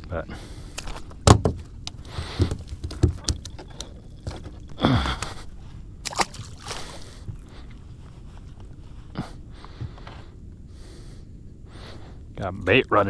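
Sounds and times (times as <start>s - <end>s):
thumps and knocks on boat: 1.2s - 1.6s, 2.2s - 3.7s
water sloshing: 1.9s - 7.7s.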